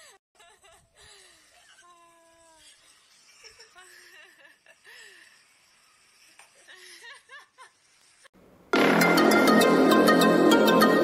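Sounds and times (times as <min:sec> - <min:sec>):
quiet human laughter: 0:00.0 - 0:05.4.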